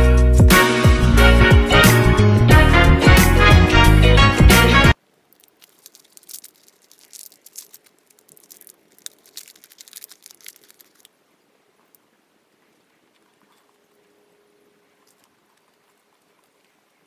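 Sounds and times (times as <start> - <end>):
music: 0.0 - 5.0
foil wrapper crinkling: 5.3 - 11.2.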